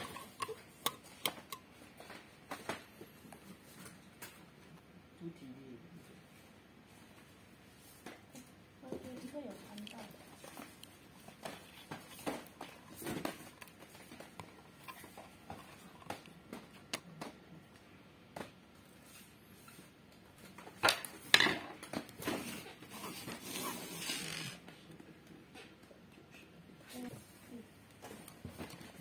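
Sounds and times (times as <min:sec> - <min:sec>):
screwdriver clicking and scraping: 0:00.0 - 0:01.7.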